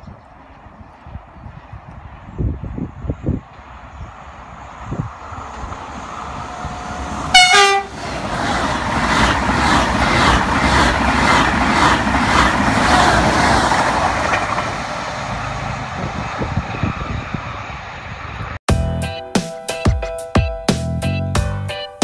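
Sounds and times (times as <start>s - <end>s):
train rushing past: 0.6s - 18.6s
train horn blast: 6.4s - 8.1s.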